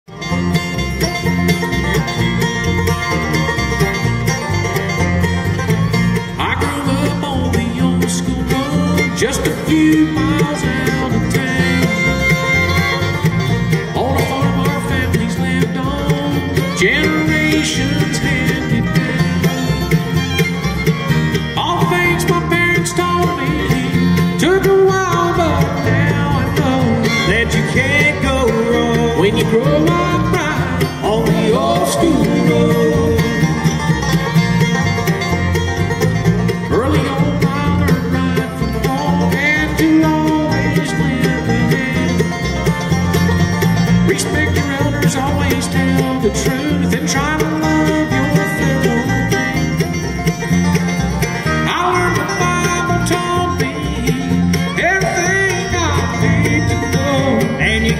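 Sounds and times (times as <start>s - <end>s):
bluegrass band playing: 0.0s - 57.9s
man singing: 6.3s - 12.9s, 13.8s - 19.8s, 21.6s - 33.8s, 36.7s - 42.5s, 44.0s - 49.5s, 51.4s - 57.9s.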